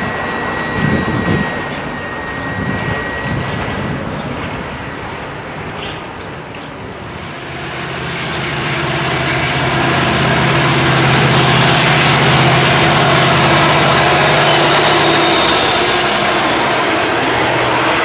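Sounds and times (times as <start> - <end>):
locomotive engine drone: 0.0 - 18.0
train cars rolling on rails: 0.0 - 18.0.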